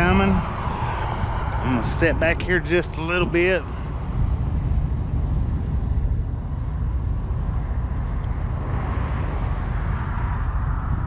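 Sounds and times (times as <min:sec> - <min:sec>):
distant road traffic rumble: 0:00.0 - 0:11.0.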